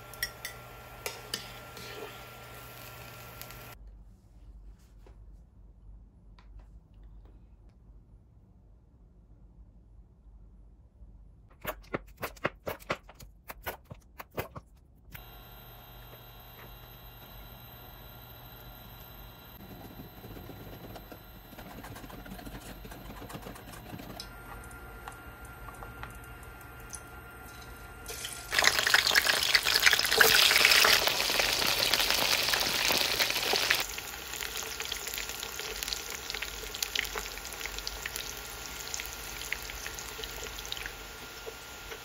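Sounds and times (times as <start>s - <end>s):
food deep-frying in oil: 0.0s - 3.8s, 25.3s - 42.0s
whisk stirring in steel bowl: 19.6s - 24.3s.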